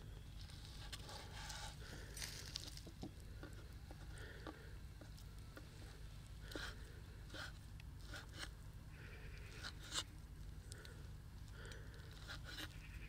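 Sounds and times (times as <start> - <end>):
steady low hum: 0.0 - 13.0
soft squishing: 9.4 - 12.9.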